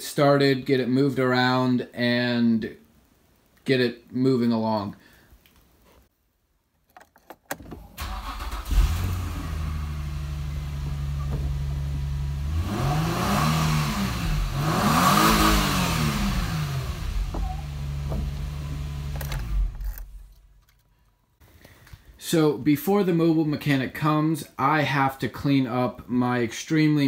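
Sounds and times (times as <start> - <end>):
car engine idling and revving: 8.3 - 20.2.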